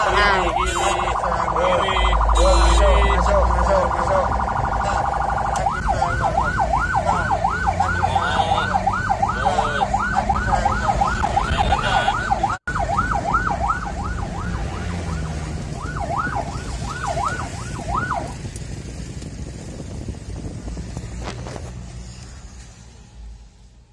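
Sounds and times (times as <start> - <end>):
ambulance siren yelping: 0.0 - 18.4
engine and road rumble: 0.0 - 23.9.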